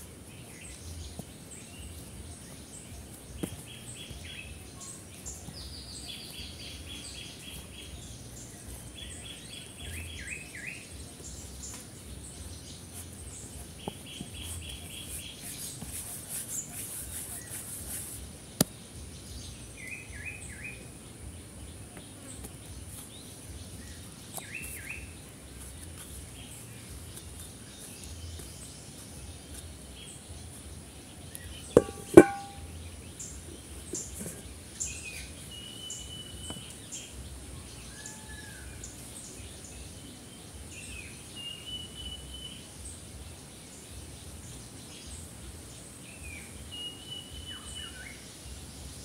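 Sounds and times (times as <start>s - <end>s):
small birds chirping: 0.0s - 49.0s
sharp knocks: 31.8s - 32.7s.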